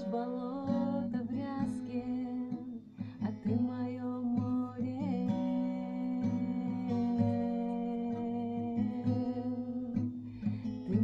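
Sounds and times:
acoustic guitar strumming: 0.0 - 11.0
woman singing: 0.0 - 11.0.

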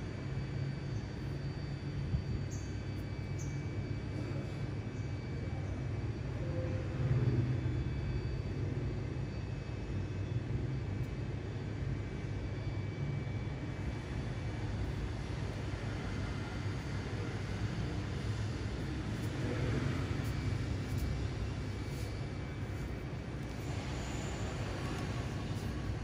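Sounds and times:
low outdoor rumble: 13.5 - 26.0.

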